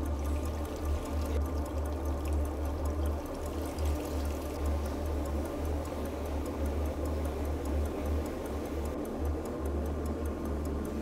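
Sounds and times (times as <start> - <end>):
water trickling over stones: 0.0 - 5.8
faint fast ticking: 0.0 - 11.0.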